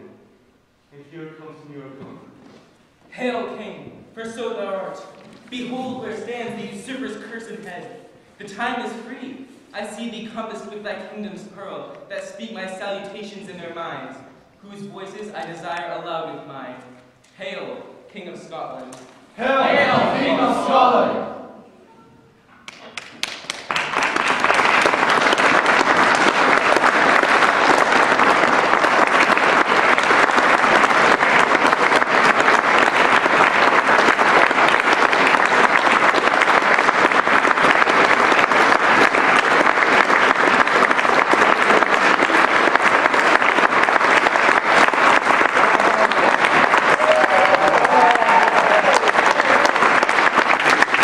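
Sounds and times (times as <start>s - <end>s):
audience applauding: 22.6s - 51.0s.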